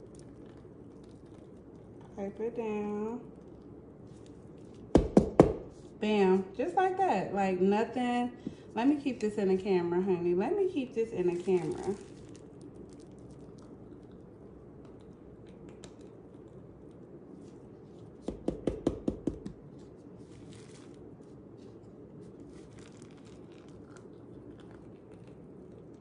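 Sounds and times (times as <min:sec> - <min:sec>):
plastic crinkling: 0:00.0 - 0:02.4, 0:03.2 - 0:05.0, 0:10.8 - 0:18.2, 0:19.7 - 0:26.0.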